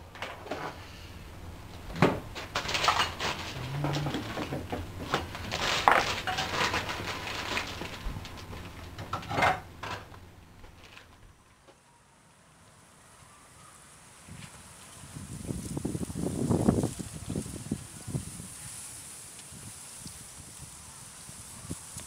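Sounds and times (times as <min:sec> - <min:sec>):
faint low hum: 0:00.0 - 0:12.1
objects knocking and clattering: 0:01.7 - 0:11.2.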